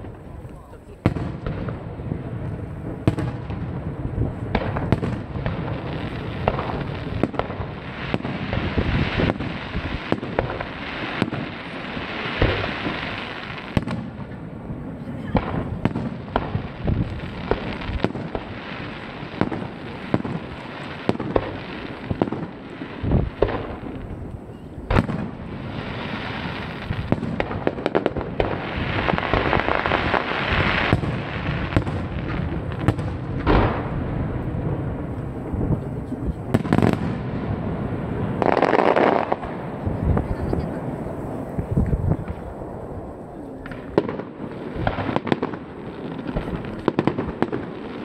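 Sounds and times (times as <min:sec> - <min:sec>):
firework pops: 0:06.4 - 0:09.5, 0:30.8 - 0:34.5, 0:41.5 - 0:42.4.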